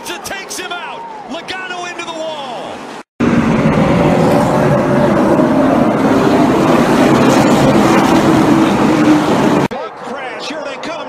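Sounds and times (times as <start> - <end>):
stock car engines racing: 3.2 - 11.0.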